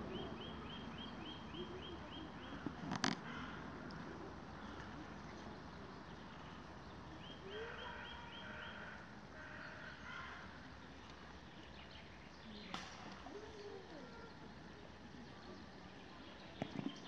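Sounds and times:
faint outdoor background noise: 0.0s - 17.0s.

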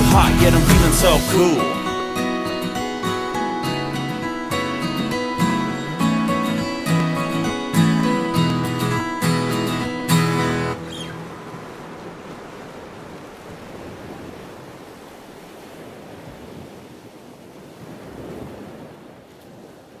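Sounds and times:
guitar music: 0.0s - 12.1s
ocean surf rushing: 0.0s - 20.0s.

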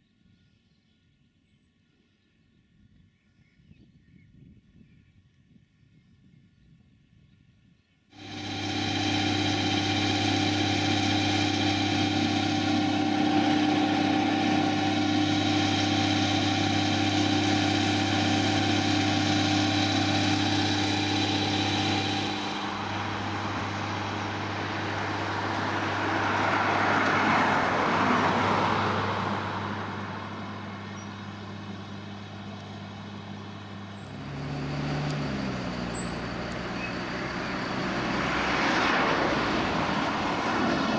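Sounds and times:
diesel engine running: 8.1s - 40.9s
engine note shifting pitch: 8.2s - 37.7s
vehicle rushing past: 10.0s - 31.7s, 34.1s - 40.9s.

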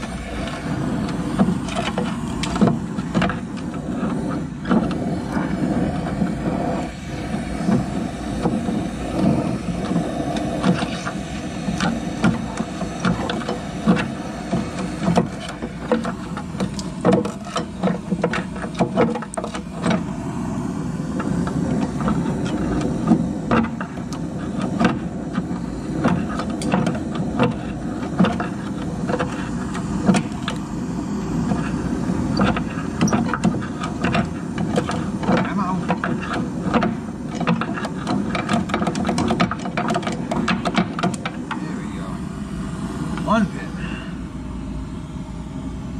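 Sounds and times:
gas torch flame burning: 0.0s - 45.9s.

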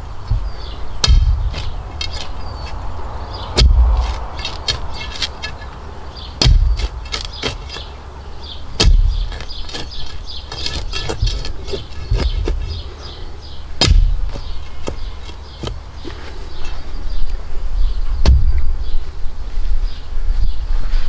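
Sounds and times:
heavy thuds: 0.2s - 2.8s, 3.4s - 5.8s, 6.4s - 7.9s, 8.8s - 13.0s, 13.8s - 15.8s, 18.1s - 18.7s.

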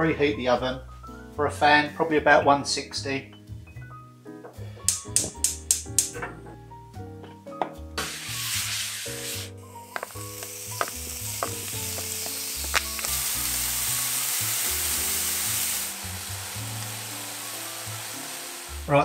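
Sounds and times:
soft background music: 0.0s - 19.0s
bacon sizzling in oil: 8.0s - 19.0s.

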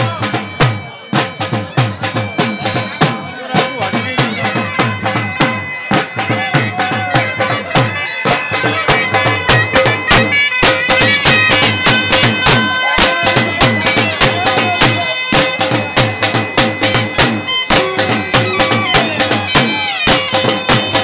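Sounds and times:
drum beating steady rhythm: 0.0s - 21.0s
reedy wind instrument melody: 0.0s - 21.0s.

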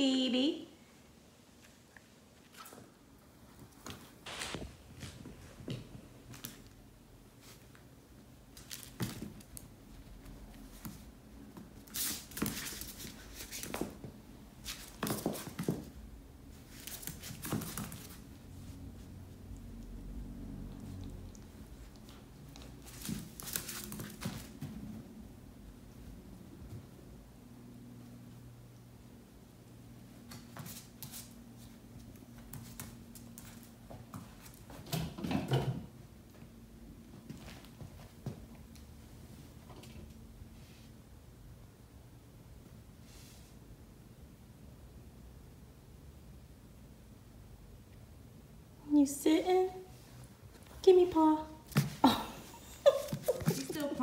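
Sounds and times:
faint steady hum: 0.0s - 54.0s
puppy scuffling with toys: 8.5s - 19.1s, 20.8s - 25.1s, 49.9s - 54.0s
plush toys rustling: 51.7s - 54.0s
paws pattering on wooden floor: 52.8s - 54.0s.

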